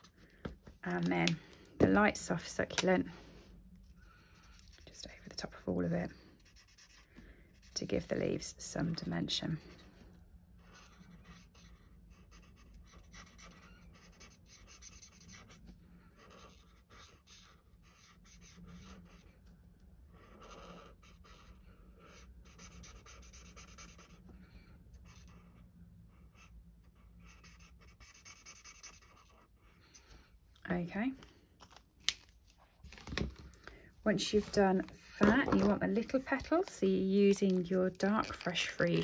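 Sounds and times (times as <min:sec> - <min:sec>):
marker scratching on cardstock: 0:06.4 - 0:07.8, 0:10.6 - 0:15.6, 0:16.2 - 0:19.3, 0:20.2 - 0:24.2, 0:26.3 - 0:29.5.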